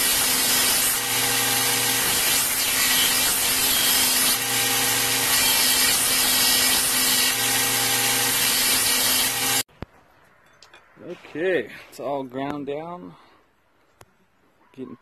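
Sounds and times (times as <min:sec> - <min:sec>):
belt grinder grinding steel: 0:00.0 - 0:09.6
motor hum: 0:00.8 - 0:05.5.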